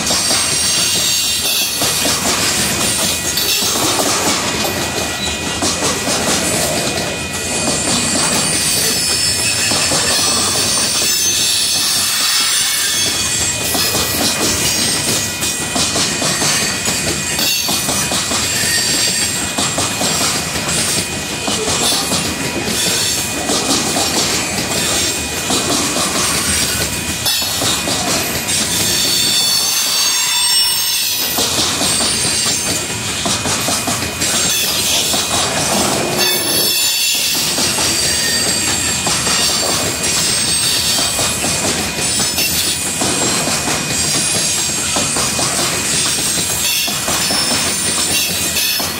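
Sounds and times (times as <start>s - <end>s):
clickety-clack over rail joints: 0.0s - 48.9s
train wheels rumbling on rail: 0.0s - 48.9s
wheel squeal: 7.5s - 15.2s, 18.4s - 19.4s, 28.5s - 32.8s, 36.2s - 41.2s, 43.9s - 48.9s.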